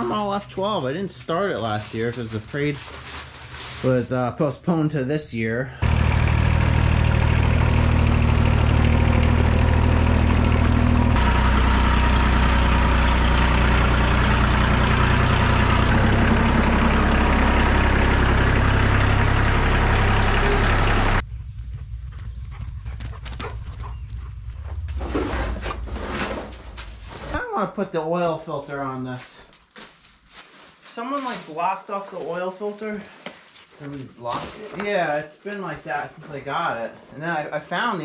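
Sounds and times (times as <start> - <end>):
footsteps on dry leaves: 1.2 - 4.2, 29.2 - 34.7
excavator and tractor engines running: 5.8 - 27.3.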